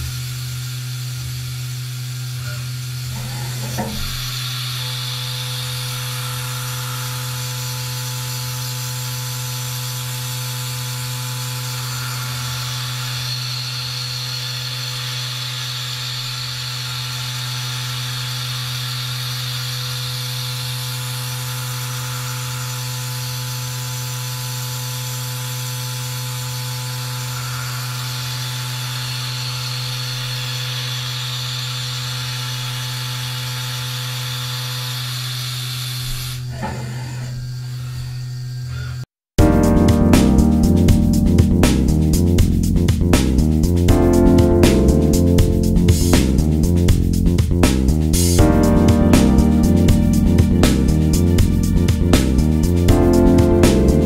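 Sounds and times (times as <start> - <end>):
milling machine spindle hum: 0.0 - 39.0
hissing cutting noise: 2.4 - 8.8, 26.9 - 54.0.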